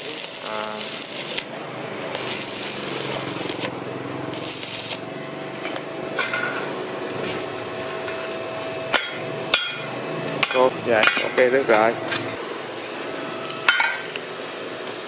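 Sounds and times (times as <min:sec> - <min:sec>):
welding arc crackling and hissing: 0:00.0 - 0:05.2.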